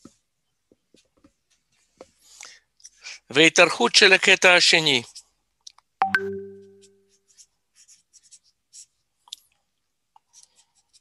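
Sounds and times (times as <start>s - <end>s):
brief ringing tone: 6.0s - 7.0s
pen writing on paper: 6.7s - 9.0s, 10.2s - 11.0s.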